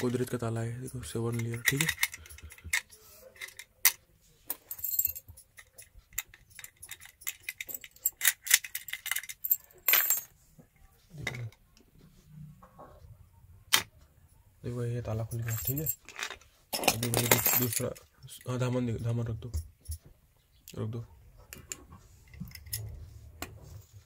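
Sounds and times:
padlock and keys clicking: 0.9s - 4.0s, 4.7s - 10.0s.

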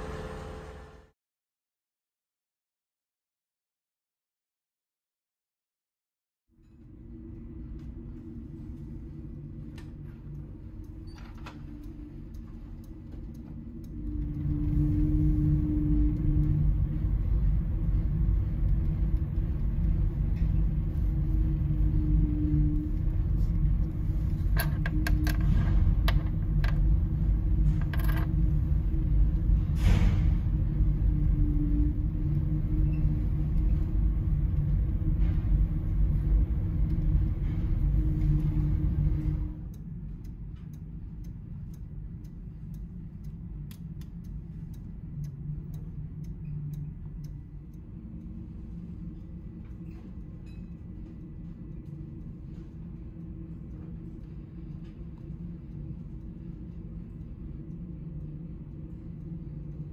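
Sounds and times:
machinery humming: 0.0s - 1.2s, 6.8s - 43.5s
quiet background hum: 6.5s - 59.9s.

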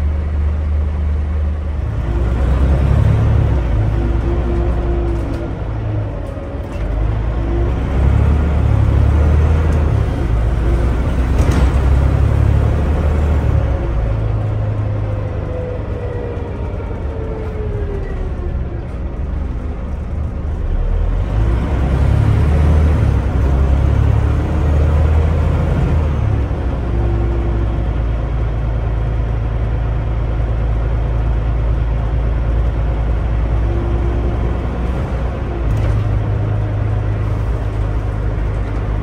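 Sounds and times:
bus diesel engine: 0.0s - 39.0s
road rumble: 0.0s - 39.0s.

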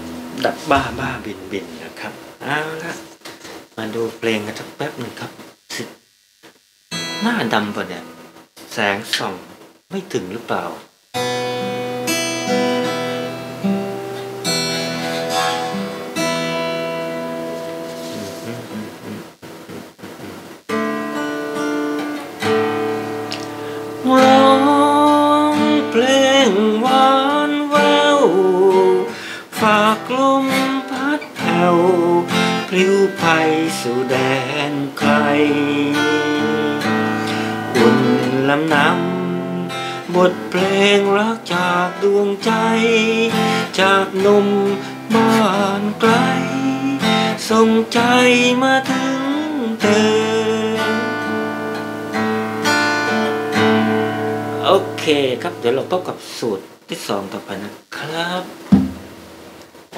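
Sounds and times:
acoustic guitar: 0.0s - 5.9s, 6.9s - 59.9s
man singing: 0.4s - 3.1s, 24.0s - 51.6s.

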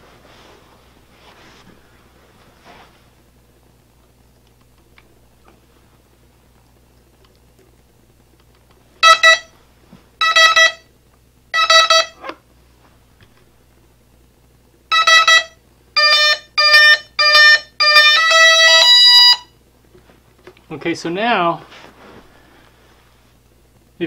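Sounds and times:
motor beeps: 9.0s - 9.5s, 10.2s - 10.8s, 14.9s - 19.4s.

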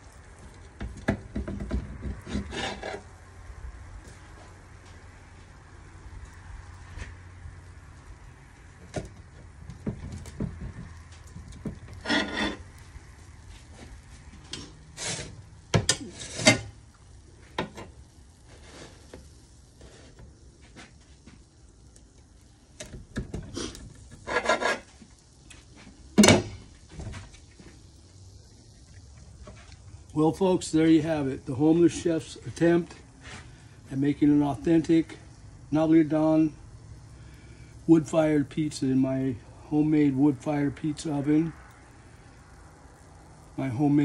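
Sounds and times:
knife rasping through pizza crust: 23.6s - 24.9s.

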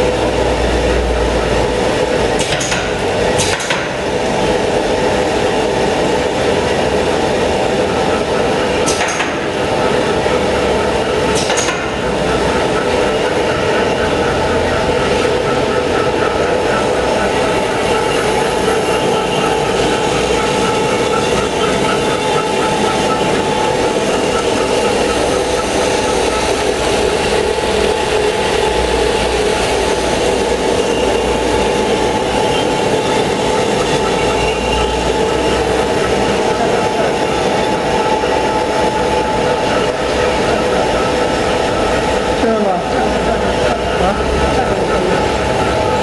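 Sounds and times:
constant machine hum: 0.0s - 46.0s
machine clattering: 0.1s - 46.0s.

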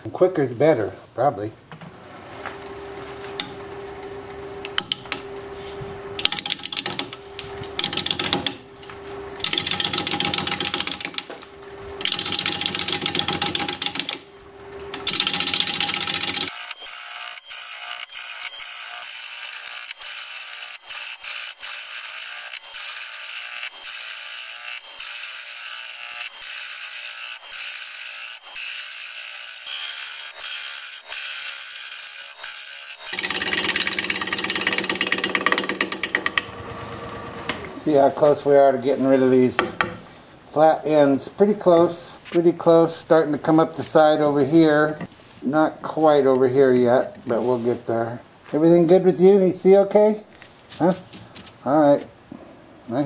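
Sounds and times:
lathe motor hum: 2.2s - 20.7s, 32.0s - 39.2s
clattery ticking of gouge: 6.2s - 7.2s, 7.8s - 8.6s, 9.4s - 11.3s, 12.0s - 14.2s, 14.9s - 16.6s, 33.1s - 36.5s
gouge cutting wood on a lathe: 14.9s - 38.4s.

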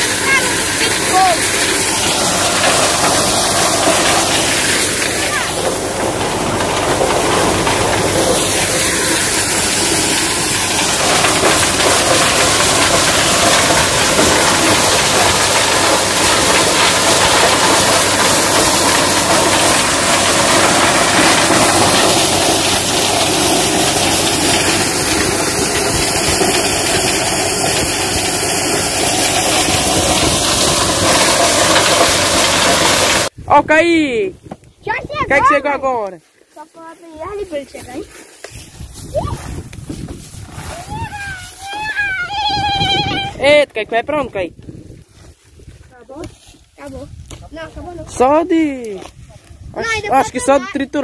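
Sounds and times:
tractor engine and threshing drum: 0.0s - 35.6s, 38.4s - 51.0s
hiss of corn through machine: 8.1s - 33.3s.

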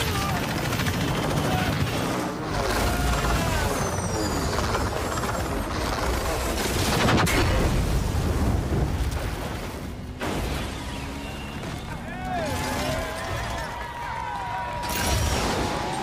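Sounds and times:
falling whines: 1.0s - 6.2s.

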